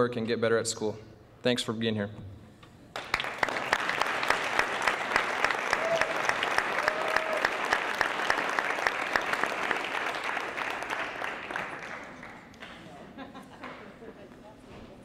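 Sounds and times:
audience applauding: 0:02.9 - 0:13.8.

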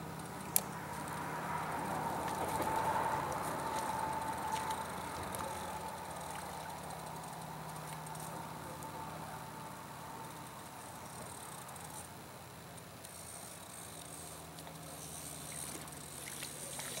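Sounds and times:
fishing reel whirring: 0:02.0 - 0:08.9, 0:09.7 - 0:12.1, 0:13.0 - 0:17.0.

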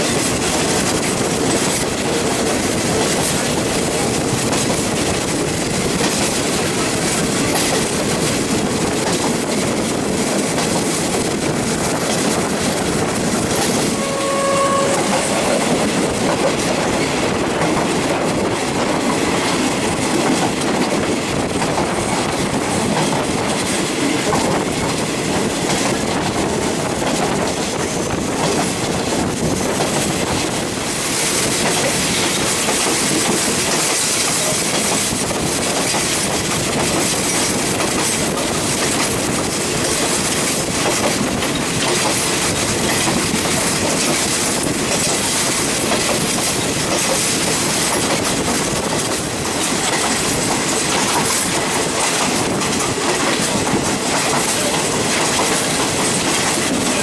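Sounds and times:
train wheel and rail noise: 0:00.0 - 0:57.0
wind: 0:00.0 - 0:57.0
brief single tone: 0:14.0 - 0:15.3.

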